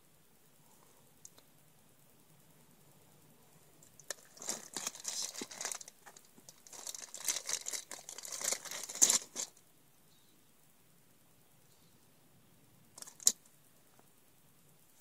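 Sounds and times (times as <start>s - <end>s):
plastic packaging crinkling: 4.0s - 9.6s.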